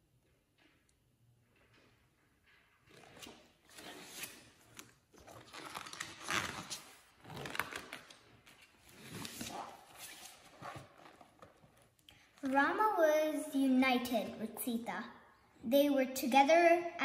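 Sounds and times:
book pages rustling: 2.9 - 12.6.

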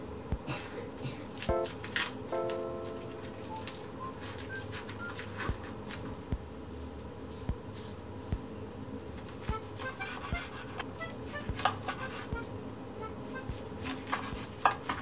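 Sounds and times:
dry rustling of seaweed: 1.3 - 6.1.

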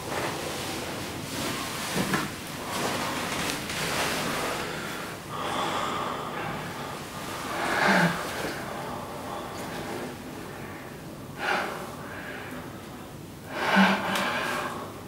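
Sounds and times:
clothing rustling: 0.0 - 5.2
people breathing heavily and gasping: 2.5 - 12.9, 13.5 - 15.0.

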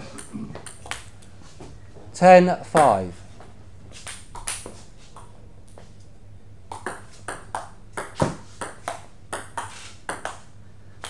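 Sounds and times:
table tennis ball hits: 6.7 - 10.5.

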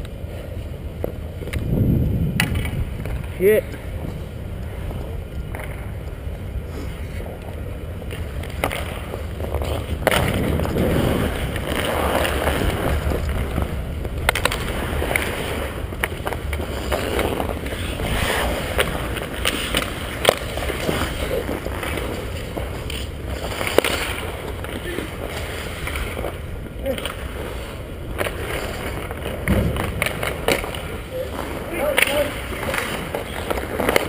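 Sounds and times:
skate blades scraping on ice: 0.1 - 1.7, 2.3 - 34.0
low rumble: 1.5 - 3.3.

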